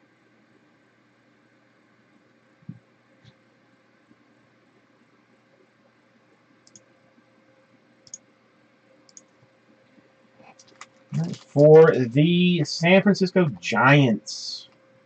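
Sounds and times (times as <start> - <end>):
faint sharp clicks: 6.6 - 6.9, 9.1 - 9.3.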